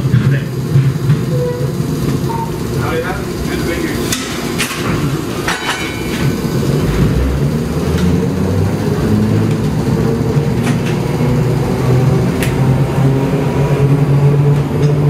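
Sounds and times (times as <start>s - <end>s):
streetcar rumbling on rails: 0.0s - 15.0s
sharp clicks and knocks: 3.4s - 7.1s, 14.5s - 15.0s.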